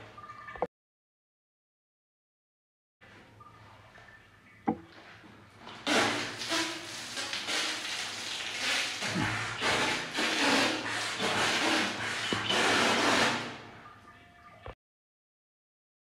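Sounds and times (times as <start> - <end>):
water jet splashing on tiles: 5.7 - 13.6.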